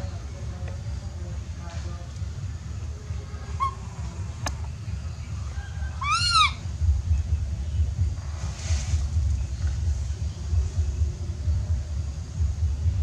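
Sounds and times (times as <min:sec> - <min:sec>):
steady low rumble: 0:00.0 - 0:13.0
baby monkey coo call: 0:03.5 - 0:04.1, 0:05.5 - 0:06.7.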